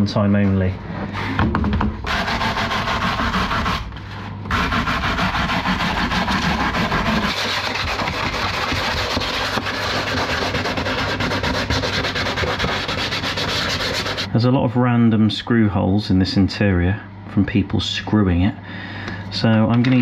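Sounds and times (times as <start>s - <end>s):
sandpaper rubbing on plastic: 2.0s - 14.3s.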